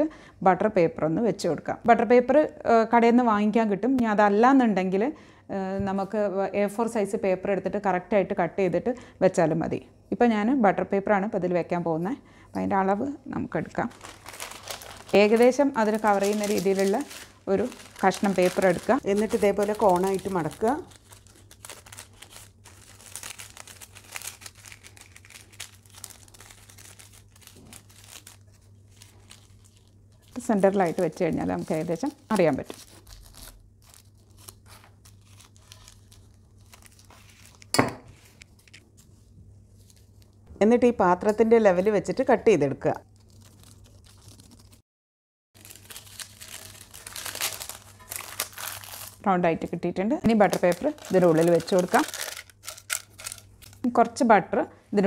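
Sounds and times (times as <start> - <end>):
paper crinkling and rustling: 13.8 - 40.3, 43.1 - 44.8, 45.6 - 49.2, 50.4 - 53.8
scissors cutting paper: 30.4 - 37.7, 50.6 - 53.8.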